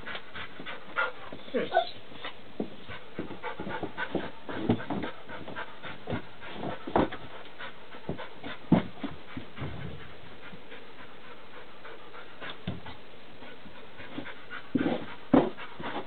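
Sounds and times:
dog panting: 0.0s - 16.0s
paws knocking on wood: 2.6s - 10.7s, 14.0s - 16.0s.

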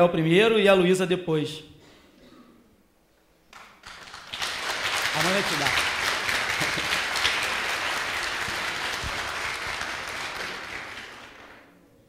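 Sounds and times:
congregation applauding: 3.5s - 11.8s.

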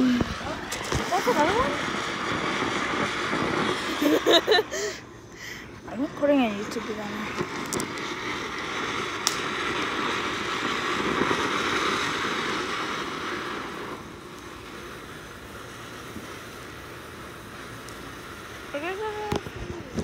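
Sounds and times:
fountain firework hissing: 0.0s - 20.0s
sharp pop: 9.2s - 9.5s.

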